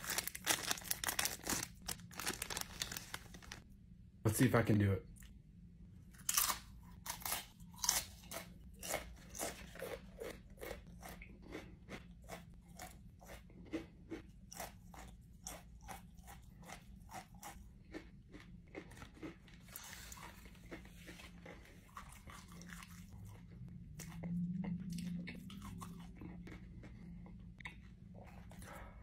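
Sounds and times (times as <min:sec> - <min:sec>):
crisp chip crunching: 0:00.0 - 0:03.6.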